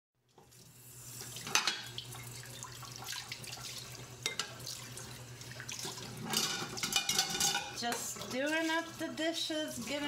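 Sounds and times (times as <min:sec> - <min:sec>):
dishware clinking: 0:04.2 - 0:04.6, 0:06.2 - 0:08.0.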